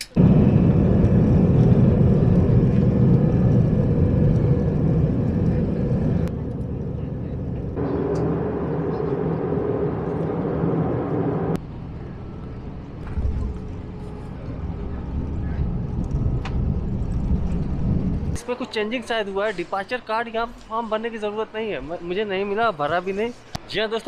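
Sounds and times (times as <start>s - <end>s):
jet engines roaring: 0.0s - 20.1s
low rumble of jet rolling out: 0.0s - 20.1s
quiet airliner cabin noise: 0.0s - 20.7s.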